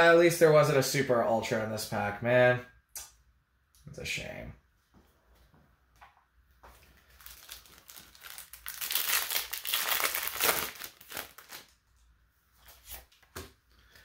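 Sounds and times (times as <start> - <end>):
foil wrapper crinkling and tearing: 7.0 - 11.8.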